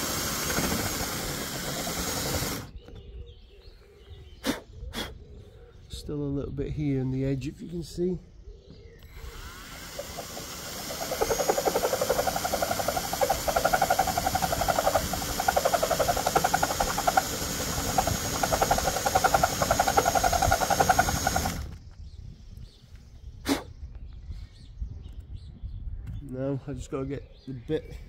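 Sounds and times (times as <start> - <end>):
drill grinding in bolt hole: 0.0 - 2.7, 9.0 - 21.8.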